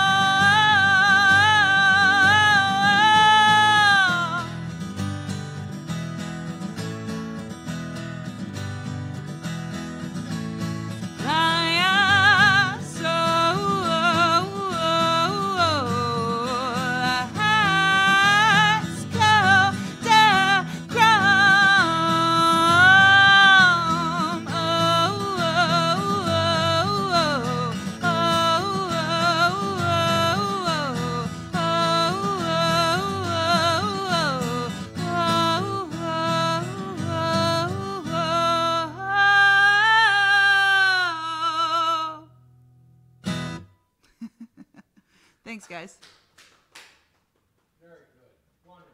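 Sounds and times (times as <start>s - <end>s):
woman singing with vibrato: 0.0s - 4.7s, 11.2s - 42.3s
acoustic guitar: 0.0s - 46.9s.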